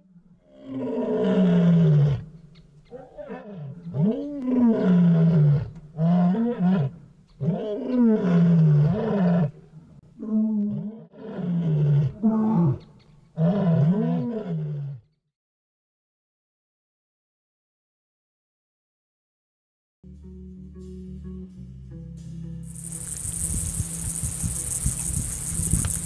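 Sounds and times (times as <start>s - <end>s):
big cat roaring: 0.4s - 9.6s, 10.2s - 15.0s.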